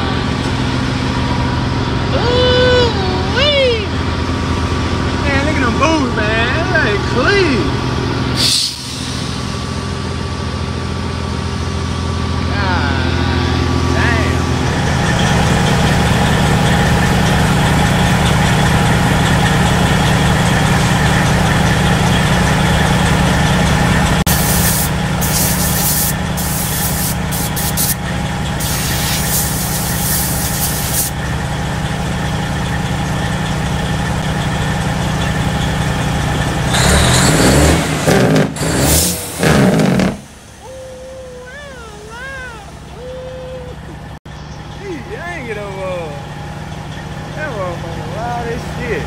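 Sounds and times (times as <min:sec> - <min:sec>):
truck diesel engine idling: 0:00.0 - 0:37.8, 0:38.5 - 0:49.0
air hissing bursts: 0:08.4 - 0:09.6, 0:24.3 - 0:28.0, 0:28.6 - 0:31.2
engine revving blips: 0:34.2 - 0:40.7.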